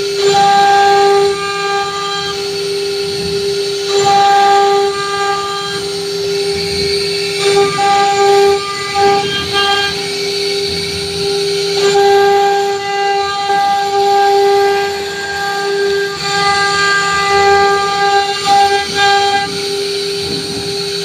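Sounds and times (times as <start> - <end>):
router spindle whine: 0.0 - 21.0.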